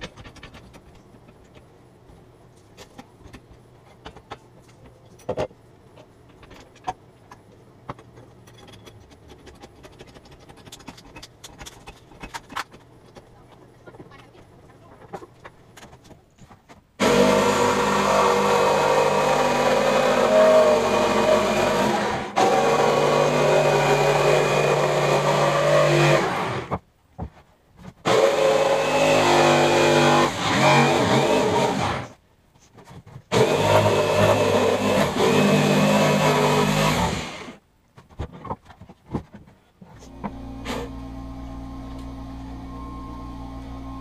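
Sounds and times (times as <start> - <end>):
electric jigsaw cutting wood: 17.0 - 26.8, 28.0 - 32.2, 33.3 - 37.6.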